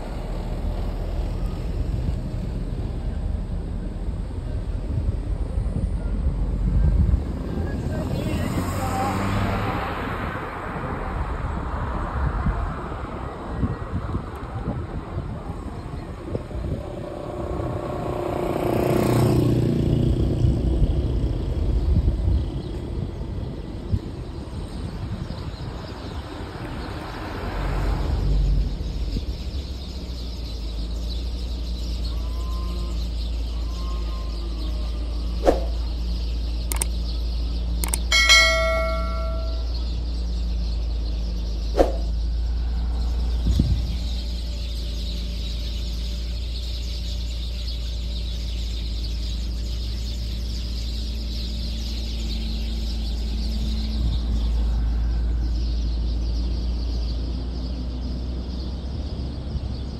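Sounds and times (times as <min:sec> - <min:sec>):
car engine and road rumble: 0:00.0 - 0:59.9
clicks and bell chime effect: 0:37.8 - 0:39.8.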